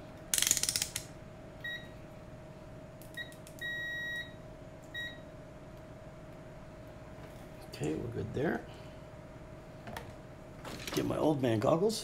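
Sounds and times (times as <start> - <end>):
multimeter beeps: 1.6 - 1.9, 3.1 - 5.3.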